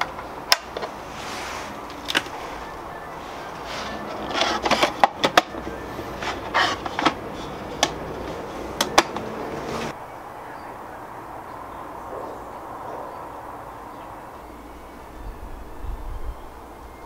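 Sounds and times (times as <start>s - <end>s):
wood scraping: 0.0s - 10.0s
wooden panels knocking and clicking: 3.9s - 9.9s.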